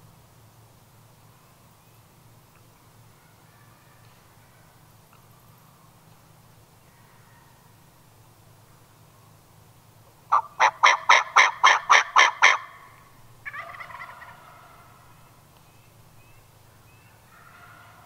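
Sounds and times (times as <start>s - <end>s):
turkey yelping: 10.3s - 15.2s
turkey rattling call: 10.3s - 15.3s.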